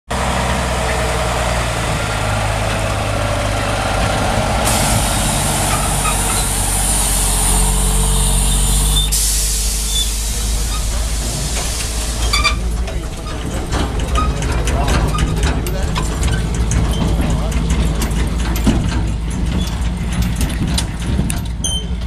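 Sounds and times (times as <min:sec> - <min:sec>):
diesel truck engine: 0:00.1 - 0:22.0
steady hiss: 0:04.7 - 0:12.8.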